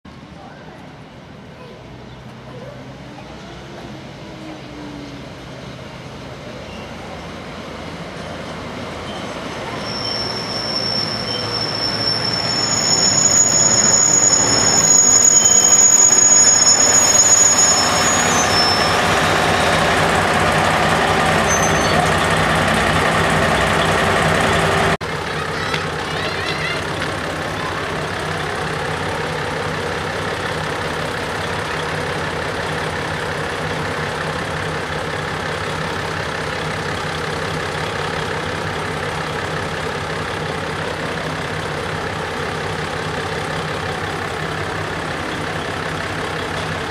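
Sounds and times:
diesel train engines running: 0:00.1 - 0:46.9
train wheels and brakes squealing: 0:06.4 - 0:07.4, 0:08.2 - 0:25.0.

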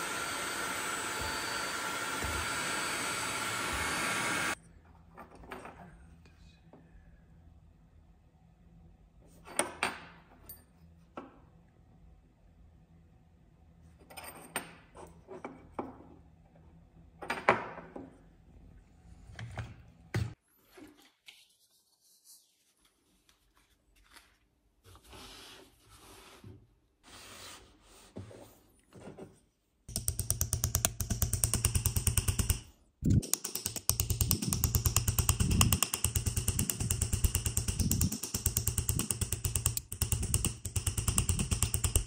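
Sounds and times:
hammer tapping steel punch: 0:29.9 - 0:42.0.

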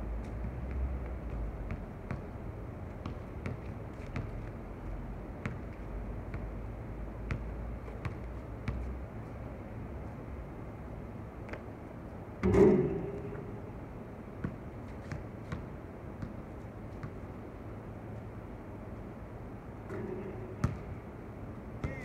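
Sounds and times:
basketball bouncing on hard court: 0:00.4 - 0:02.4, 0:03.0 - 0:04.4, 0:05.4 - 0:05.7, 0:07.3 - 0:08.9, 0:14.4 - 0:16.4, 0:19.9 - 0:21.0, 0:21.8 - 0:22.0.

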